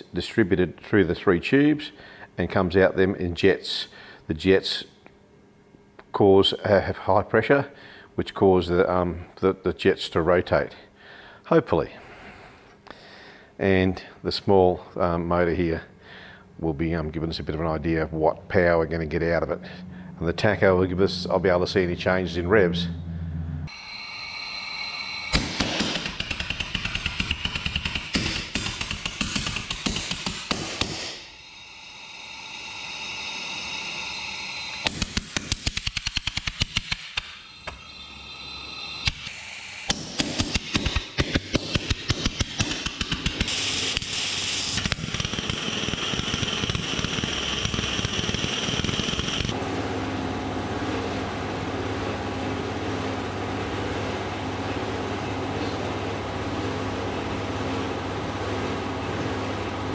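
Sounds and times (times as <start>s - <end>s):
pulse jet engine detonations: 23.7s - 28.7s
steady hiss: 28.1s - 41.8s, 42.6s - 49.5s.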